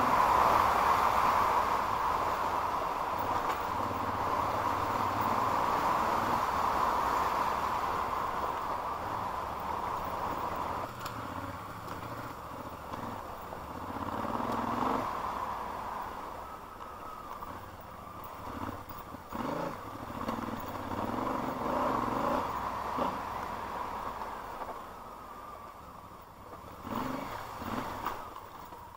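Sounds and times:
vehicle on rough unpaved road: 0:00.0 - 0:28.9.

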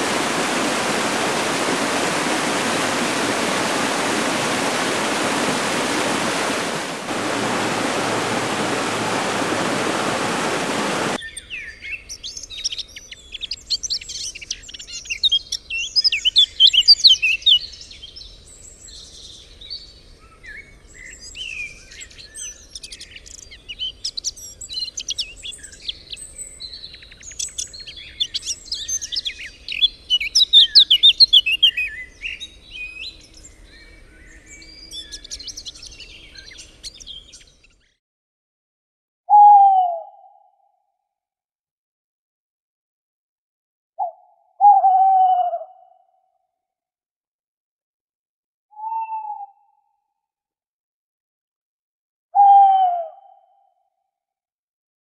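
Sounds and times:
waterfall rushing: 0:00.0 - 0:11.2
small birds chirping: 0:10.7 - 0:38.0.

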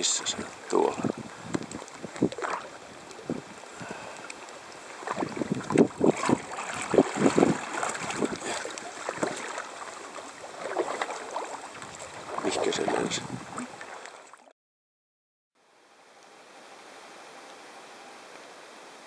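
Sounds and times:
wind on microphone: 0:00.0 - 0:04.2, 0:05.0 - 0:09.5, 0:11.7 - 0:13.8
water splashing around kayak paddle: 0:00.0 - 0:14.5.

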